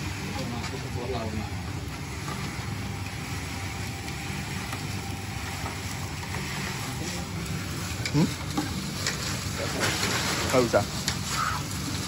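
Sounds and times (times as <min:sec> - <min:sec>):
drum roaster rumbling: 0:00.0 - 0:12.0
hot sand hissing: 0:03.0 - 0:12.0.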